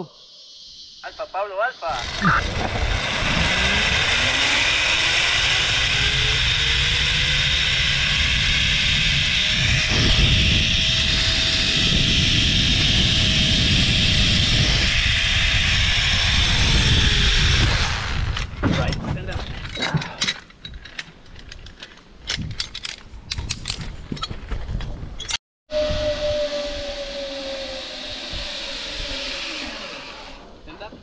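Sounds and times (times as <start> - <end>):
trolley whine: 1.9 - 18.6, 25.7 - 31.0
zip line pulleys running on cable: 2.0 - 18.5, 26.0 - 30.7.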